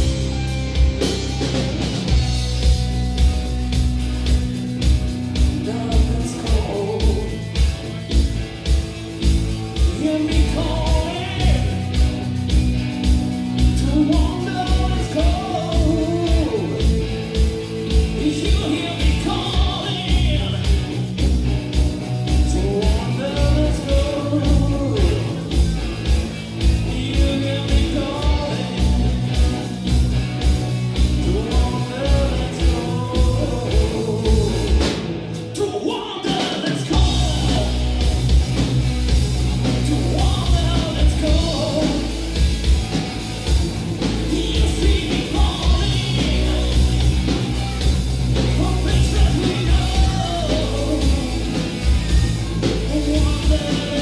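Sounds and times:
rock band playing: 0.0s - 54.0s
man singing: 5.5s - 7.6s, 9.8s - 12.1s, 13.6s - 21.2s, 22.2s - 25.7s, 26.6s - 29.4s, 31.0s - 38.2s, 39.7s - 42.2s, 44.0s - 47.4s, 48.4s - 54.0s.

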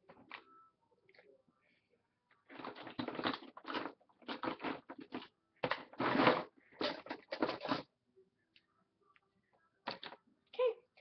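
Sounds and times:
rummaging through makeup items: 2.3s - 7.9s.

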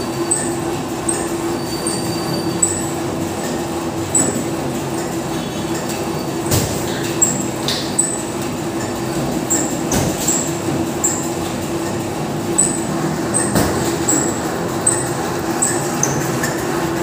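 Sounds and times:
mechanical hum: 0.0s - 17.0s
short high squeaks: 0.2s - 3.0s, 12.6s - 16.6s.

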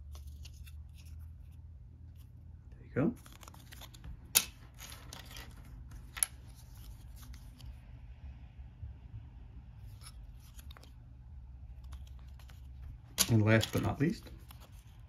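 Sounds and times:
cardboard handled clicking and rubbing: 0.0s - 1.6s, 3.2s - 7.8s, 9.8s - 11.0s, 11.7s - 15.0s.

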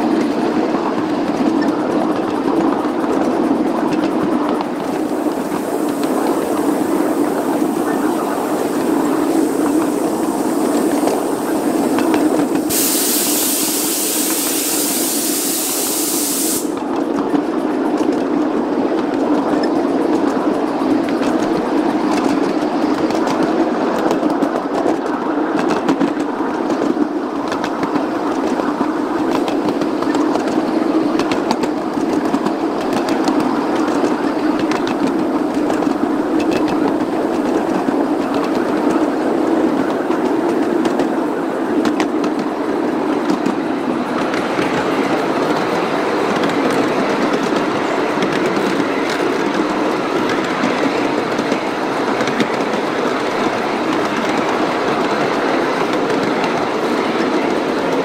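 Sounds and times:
rail joint clicks: 0.0s - 58.0s
wheels rumbling on rails: 0.0s - 58.0s
steam hiss: 4.8s - 16.9s.

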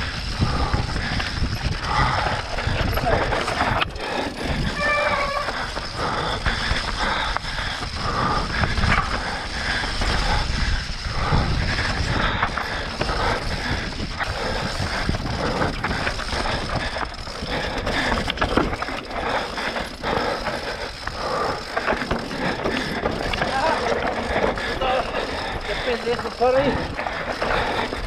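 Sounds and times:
wind rumble on microphone: 0.0s - 19.0s
mountain bike rattling on rocks: 0.0s - 28.0s.

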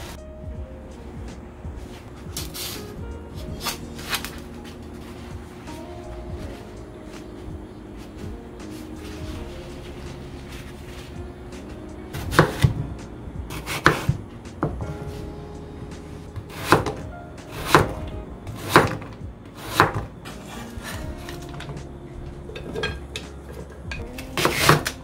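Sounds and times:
soft background music: 0.0s - 25.0s
knife chopping on cutting board: 12.2s - 12.8s, 13.5s - 14.2s, 16.5s - 20.1s, 24.4s - 24.9s.

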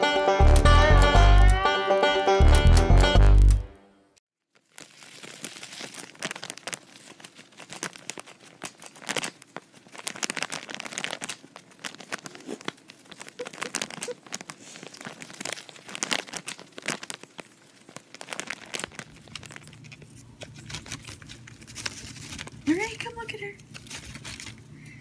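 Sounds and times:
plastic wrapping crinkling: 4.4s - 25.0s
small clicks and scrapes: 4.6s - 22.6s, 23.6s - 24.8s.

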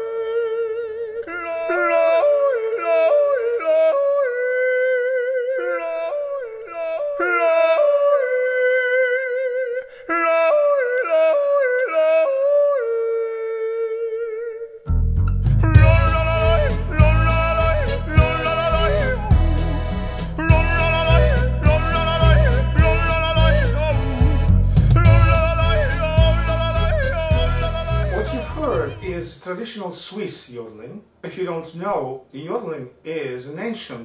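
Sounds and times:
person yodeling: 0.0s - 14.9s, 15.6s - 24.4s, 25.0s - 29.2s
instrumental music with heavy bass: 14.9s - 29.2s.

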